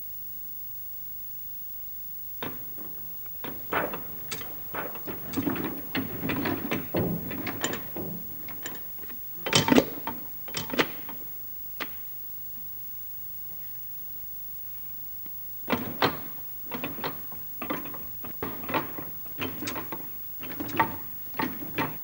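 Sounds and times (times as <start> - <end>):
scraping: 2.4 - 11.3, 15.7 - 22.0
sharp clicks and knocks: 2.4 - 12.0, 15.7 - 22.0.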